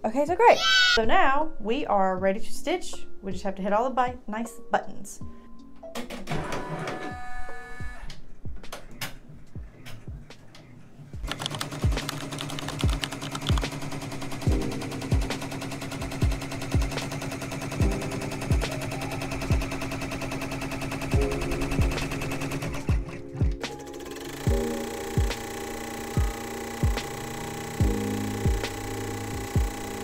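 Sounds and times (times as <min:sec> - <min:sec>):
background music with steady beat: 0:01.0 - 0:30.0
embroidery machine needle rattling: 0:23.8 - 0:30.0.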